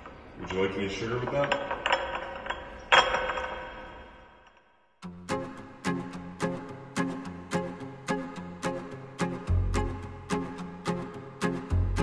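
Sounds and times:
background music with steady beat: 0:05.0 - 0:12.0.

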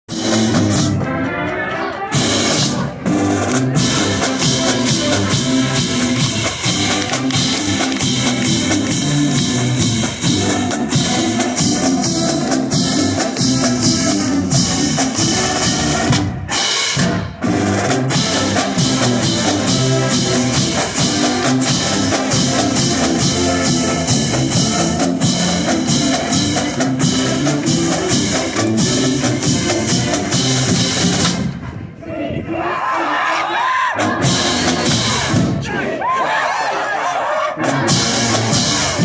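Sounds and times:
brass and sousaphones playing: 0:00.1 - 0:31.6, 0:32.3 - 0:39.0
snare and bass drums beating: 0:02.2 - 0:31.6.

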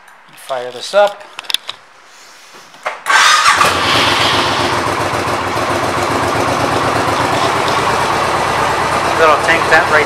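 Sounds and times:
motorcycle engine starting and idling: 0:03.0 - 0:10.0.

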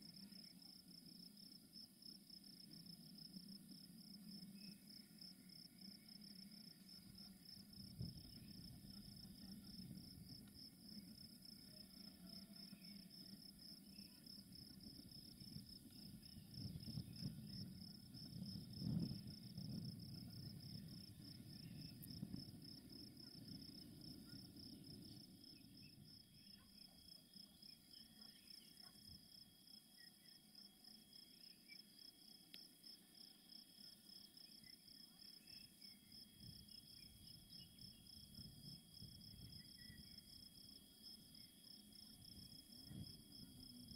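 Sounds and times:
crickets chirping: 0:00.0 - 0:43.9
faint low rumble: 0:12.7 - 0:26.2.

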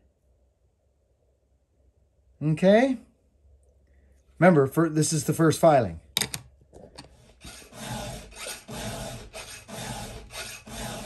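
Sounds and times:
file rasping on chainsaw chain: 0:07.4 - 0:11.0.

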